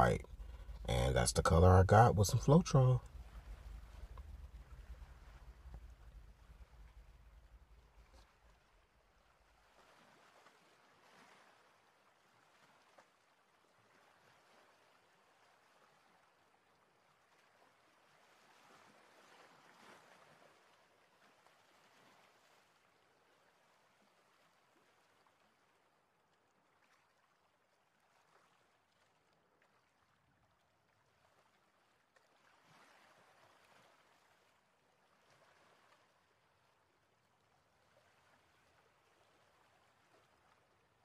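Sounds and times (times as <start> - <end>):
faint background hiss: 0.0 - 9.6.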